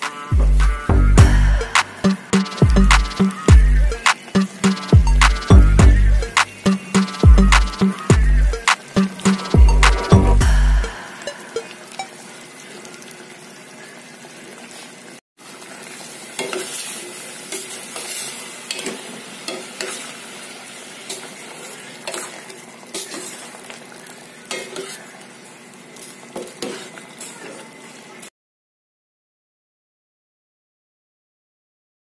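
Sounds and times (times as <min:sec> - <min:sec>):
hiss of bubbling broth: 0:08.6 - 0:28.2
metal utensil scraping a pot: 0:26.5 - 0:27.0.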